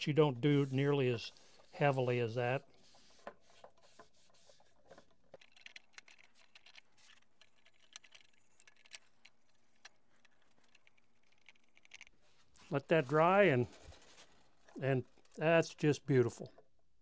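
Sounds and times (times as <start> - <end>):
cloth rag wiping wood: 0.1 - 5.0.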